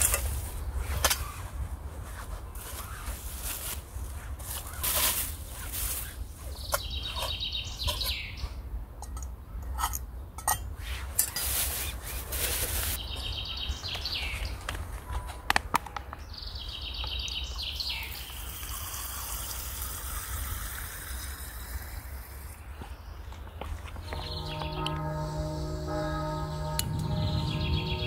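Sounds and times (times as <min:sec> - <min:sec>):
plastic bag rustling: 0:01.9 - 0:07.3, 0:11.2 - 0:13.0
metal cookware clinking: 0:09.0 - 0:11.7
fabric sack rustling: 0:11.3 - 0:13.0.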